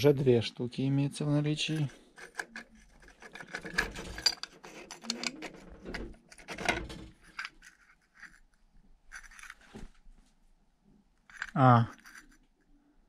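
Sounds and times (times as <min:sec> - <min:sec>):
metal parts clinking and scraping: 0:01.6 - 0:09.7, 0:11.2 - 0:12.5.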